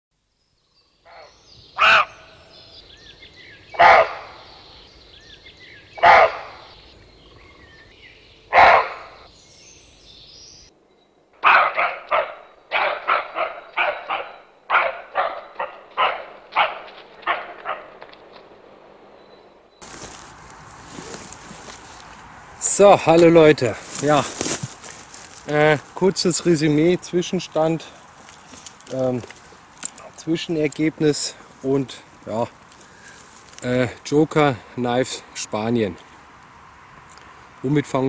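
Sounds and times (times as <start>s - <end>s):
birds chirping faintly: 0.2s - 38.0s
dog barking: 1.1s - 2.2s, 3.8s - 4.4s, 6.0s - 6.8s, 8.5s - 9.2s, 11.4s - 18.0s.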